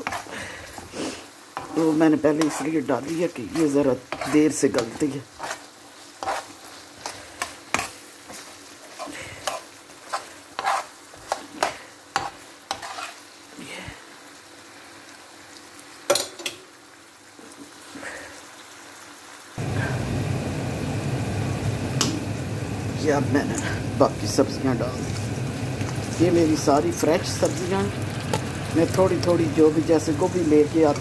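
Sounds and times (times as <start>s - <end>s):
spatula scraping frying pan: 0.0s - 13.4s, 23.6s - 31.0s
low sizzle: 0.0s - 31.0s.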